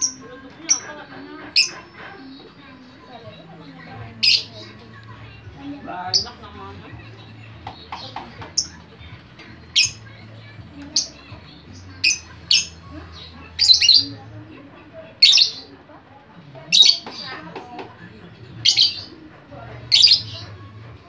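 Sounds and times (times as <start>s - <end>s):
lovebird chirping and squawking: 0.0s - 2.6s, 4.0s - 4.8s, 10.9s - 14.2s, 15.2s - 15.7s, 18.6s - 19.1s.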